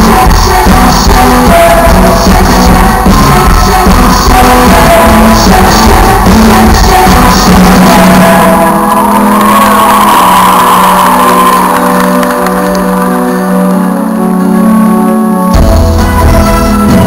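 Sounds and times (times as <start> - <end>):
loud dance music: 0.0 - 12.2.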